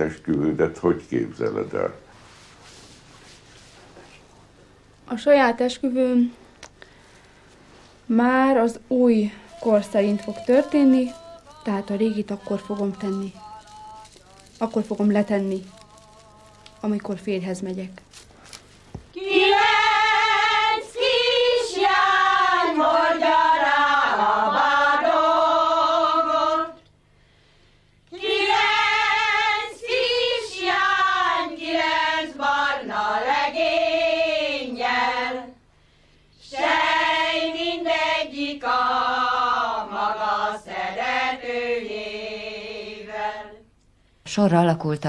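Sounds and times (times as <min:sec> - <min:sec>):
women singing in unison: 0:08.2 - 0:17.3, 0:19.1 - 0:26.9, 0:28.1 - 0:35.6, 0:36.4 - 0:43.7.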